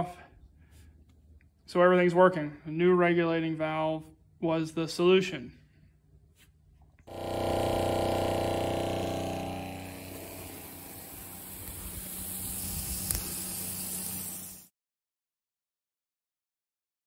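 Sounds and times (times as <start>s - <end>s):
sprayer motor drone: 7.1s - 14.7s
liquid spraying hiss: 9.1s - 14.7s.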